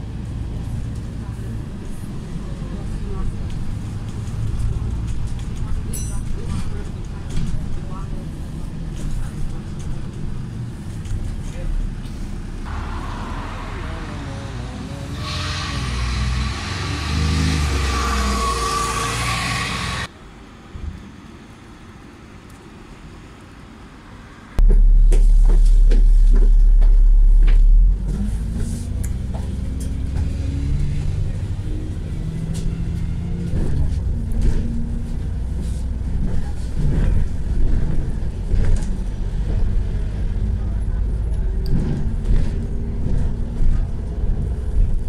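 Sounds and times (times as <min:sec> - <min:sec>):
bus engine running: 0:00.0 - 0:45.0
busy street traffic: 0:00.0 - 0:45.0
road noise: 0:00.0 - 0:45.0
loud low rumble: 0:12.5 - 0:20.1, 0:24.6 - 0:45.0.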